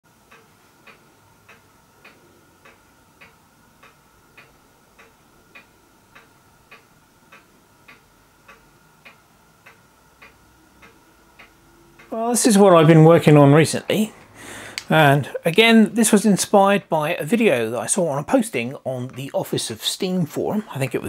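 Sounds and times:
clock ticking: 0.1 - 21.0.

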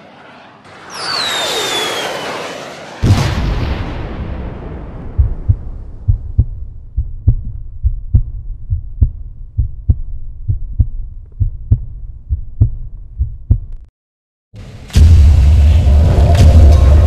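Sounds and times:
low rumble: 3.0 - 13.9, 14.6 - 17.0
low thumps: 3.0 - 13.9.

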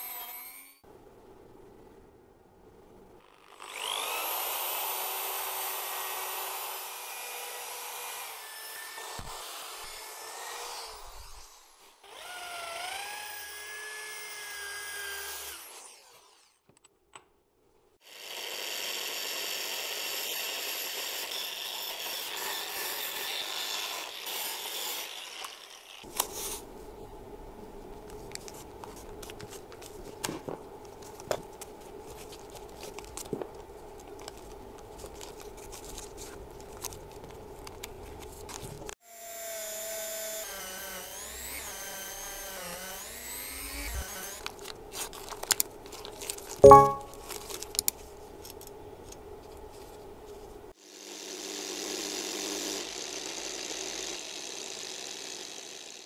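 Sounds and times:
wire brush drill scraping metal: 0.0 - 0.8.

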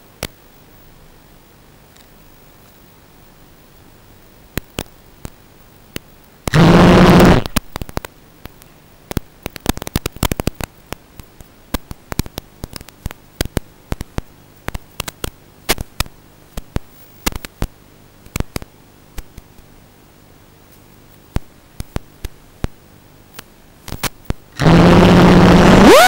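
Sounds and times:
faint low hum: 0.0 - 26.0
static crackling clicks: 4.5 - 19.7, 20.7 - 26.0.

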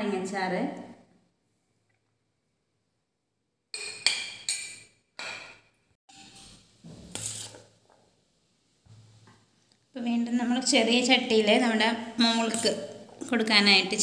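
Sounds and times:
spoon scraping: 6.1 - 8.0.

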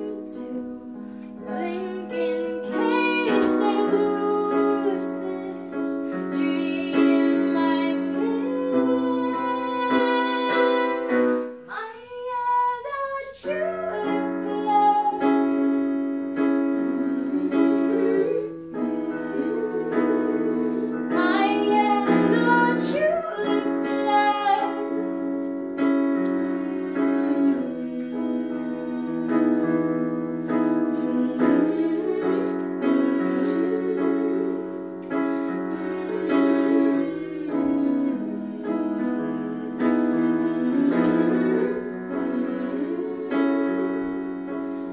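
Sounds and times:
woman singing: 0.0 - 15.7, 16.9 - 25.2, 35.8 - 44.1
digital piano chords: 0.0 - 44.9.

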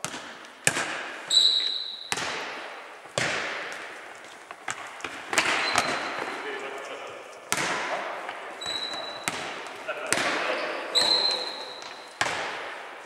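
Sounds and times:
football bouncing on wooden floor: 0.0 - 6.4, 7.5 - 12.9
short high squeak: 8.6 - 9.2.

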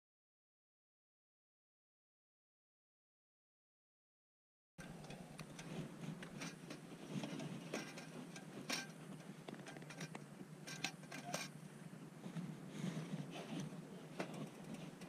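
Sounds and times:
clicks and taps handling lanterns: 4.8 - 11.6, 12.2 - 15.0
low steady hum: 4.8 - 15.0.

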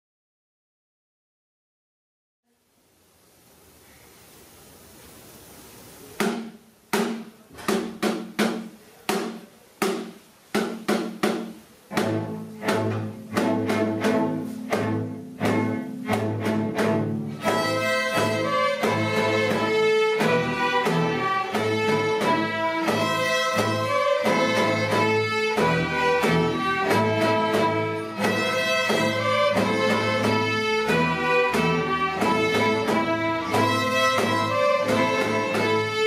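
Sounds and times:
string orchestra playing: 11.8 - 36.0.

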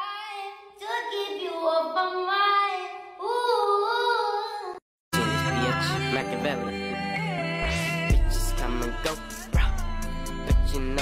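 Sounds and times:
high singing voice: 3.2 - 11.0
song with heavy bass line: 7.6 - 11.0.

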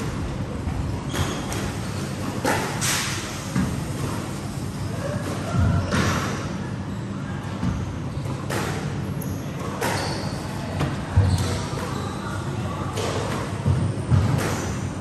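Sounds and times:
shoe squeaks: 1.0 - 2.2, 9.1 - 12.4.

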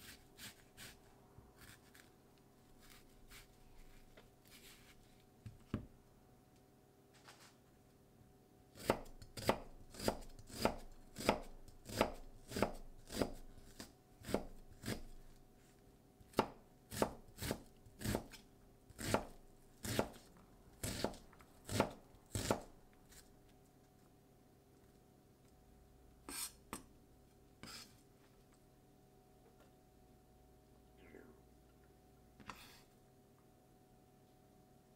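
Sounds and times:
knife chopping on cutting board: 8.8 - 13.4, 19.0 - 20.2, 20.8 - 22.7.

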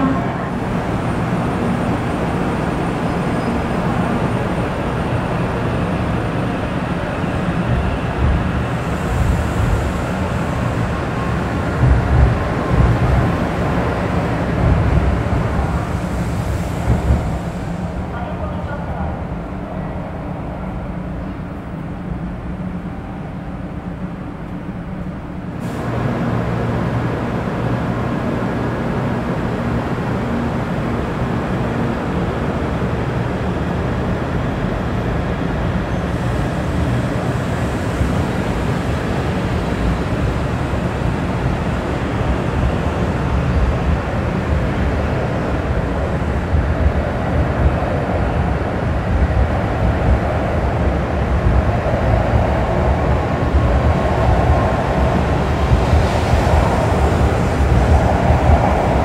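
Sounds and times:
stationary train hum: 0.0 - 59.0
rushing noise: 35.6 - 59.0.

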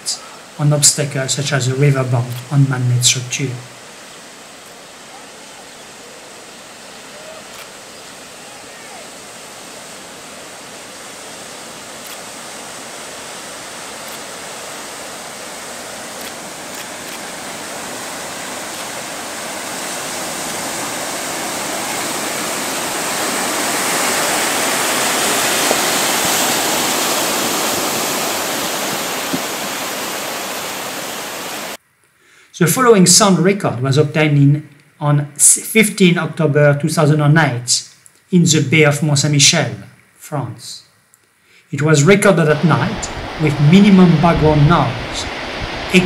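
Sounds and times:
rushing breaking water: 0.0 - 31.8, 41.8 - 46.0.

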